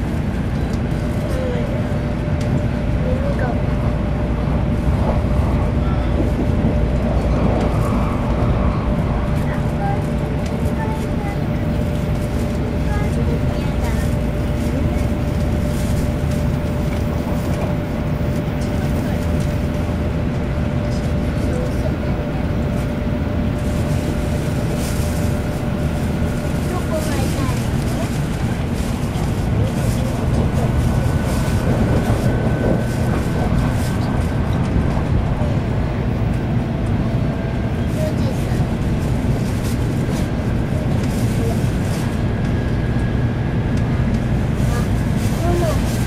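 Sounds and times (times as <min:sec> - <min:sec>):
train cabin rumble: 0:00.0 - 0:46.0.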